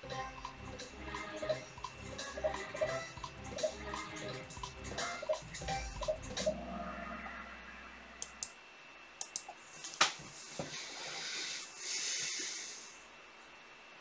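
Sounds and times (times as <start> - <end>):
computer mouse clicks: 8.2 - 8.6, 9.2 - 9.6
soft hissing: 9.6 - 13.7.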